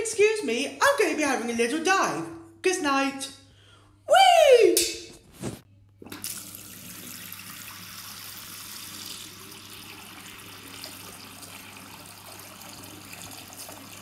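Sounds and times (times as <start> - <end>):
tap water splashing into sink: 6.0 - 14.0.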